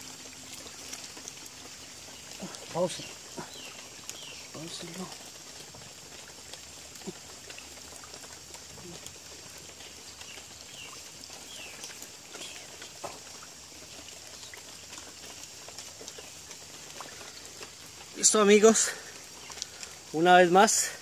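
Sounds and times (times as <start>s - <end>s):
steady high hiss: 9.6s - 21.0s.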